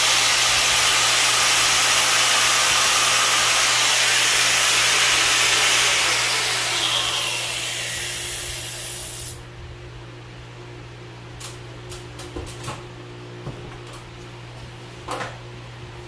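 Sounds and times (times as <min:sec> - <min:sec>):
power tool motor whirring: 0:00.0 - 0:09.4.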